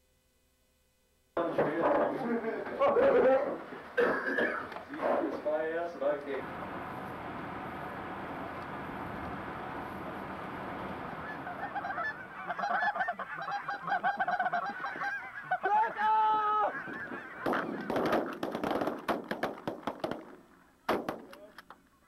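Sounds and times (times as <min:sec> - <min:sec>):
geese honking: 0:06.4 - 0:18.6
shotgun shots: 0:17.4 - 0:21.5.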